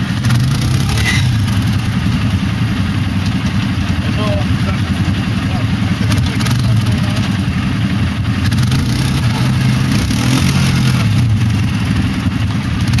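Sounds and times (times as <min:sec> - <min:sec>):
wheels digging through loose dirt: 0:00.0 - 0:02.3
atv engine revving under load: 0:00.0 - 0:13.0.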